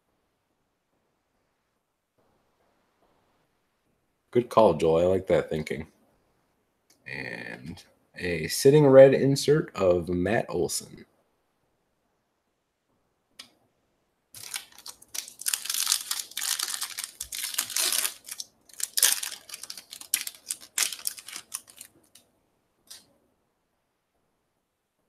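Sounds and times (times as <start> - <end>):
foil wrapper tearing and crinkling: 14.4 - 22.2.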